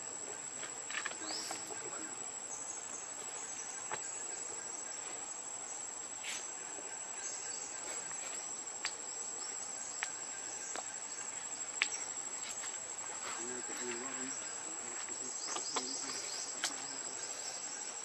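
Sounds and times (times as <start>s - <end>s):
insects droning: 0.0s - 18.0s.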